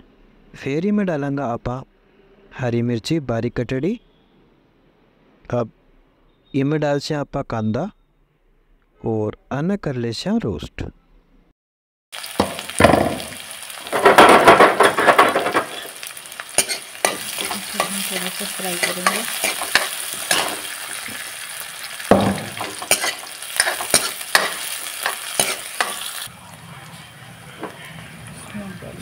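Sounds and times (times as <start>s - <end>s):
onions sizzling in oil: 12.2s - 26.4s
ladle scraping metal pan: 13.9s - 21.1s, 22.2s - 26.1s.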